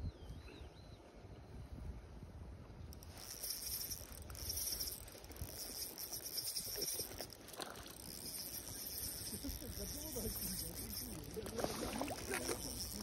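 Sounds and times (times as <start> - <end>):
wind rumble on microphone: 0.0 - 7.0
fishing reel whirring: 2.9 - 13.0
fish splashing: 3.8 - 13.0.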